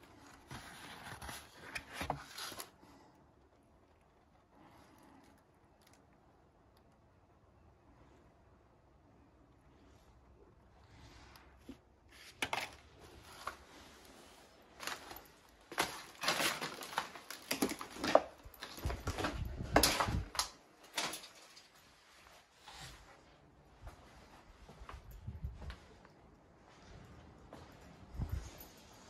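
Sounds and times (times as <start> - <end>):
paper rustling and crinkling: 0.0 - 3.0, 11.0 - 23.0.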